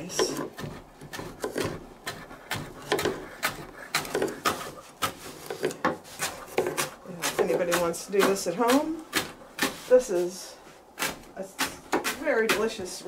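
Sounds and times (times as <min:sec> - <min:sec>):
knife chopping on cutting board: 0:00.1 - 0:09.9, 0:11.0 - 0:12.8.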